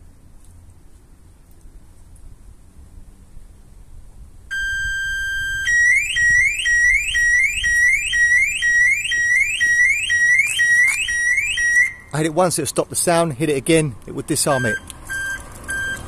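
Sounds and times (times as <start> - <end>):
car alarm siren: 4.5 - 12.1, 14.5 - 16.0.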